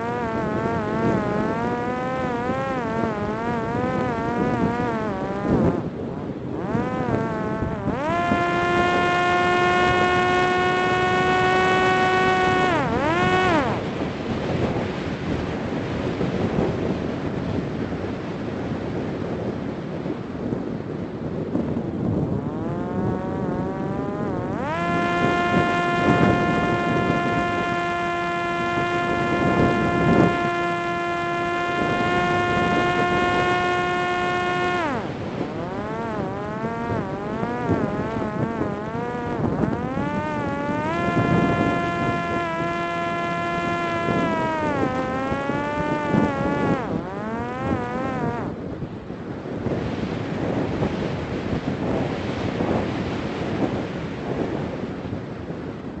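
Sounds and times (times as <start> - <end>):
drone motor whining: 0.0 - 15.4, 21.9 - 48.7
rushing wind: 0.0 - 56.0.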